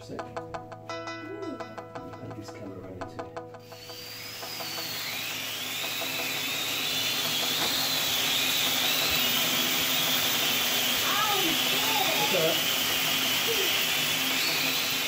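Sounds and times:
toy drone motors whining: 3.6s - 15.0s
rushing hiss: 3.7s - 15.0s.

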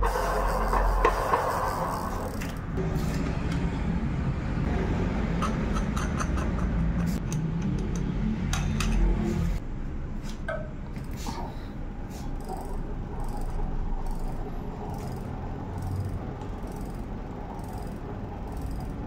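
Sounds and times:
metallic freewheel clicks: 0.0s - 2.8s, 12.3s - 19.0s.

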